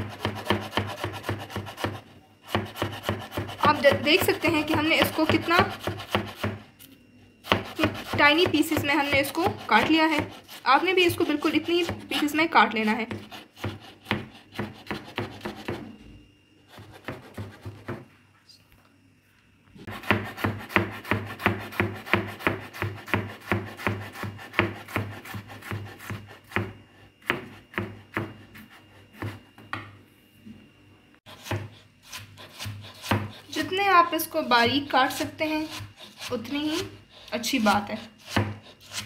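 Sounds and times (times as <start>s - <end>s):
knife chopping on wooden board: 0.0s - 6.7s, 7.4s - 12.3s, 13.0s - 16.0s, 16.7s - 18.1s, 19.9s - 29.9s, 31.3s - 33.5s, 35.1s - 36.9s, 38.2s - 39.0s.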